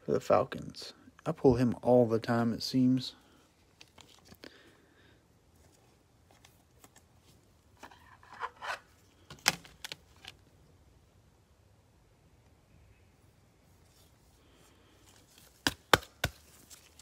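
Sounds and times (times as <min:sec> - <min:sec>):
card handling rustles and scrapes: 0:03.6 - 0:04.4, 0:05.6 - 0:10.4.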